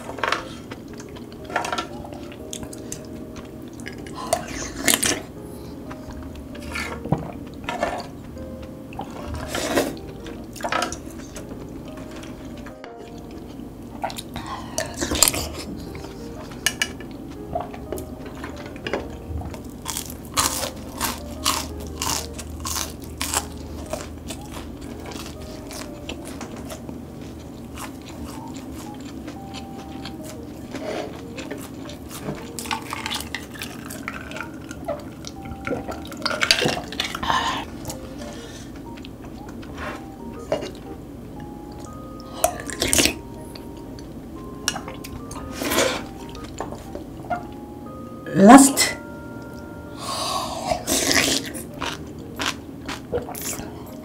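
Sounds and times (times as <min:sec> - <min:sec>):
eating sounds: 0:02.1 - 0:11.5, 0:13.0 - 0:39.8, 0:41.8 - 0:43.2, 0:50.1 - 0:53.8.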